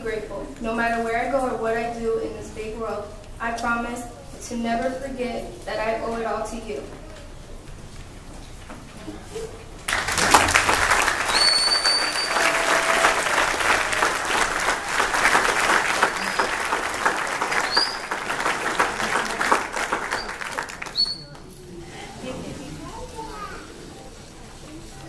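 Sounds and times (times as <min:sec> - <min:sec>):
audience clapping: 0:09.9 - 0:21.5
high whistles: 0:11.1 - 0:13.8, 0:17.4 - 0:18.3, 0:20.0 - 0:21.4.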